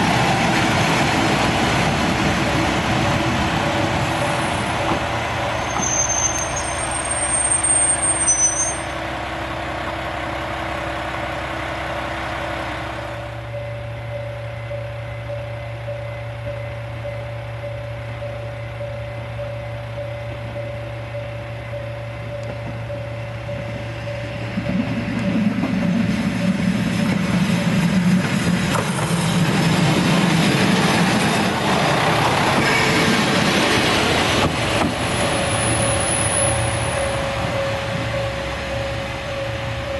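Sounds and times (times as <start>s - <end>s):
diesel railcar engine: 0.0s - 39.9s
steady pulsing tone: 12.5s - 28.2s, 35.2s - 39.9s.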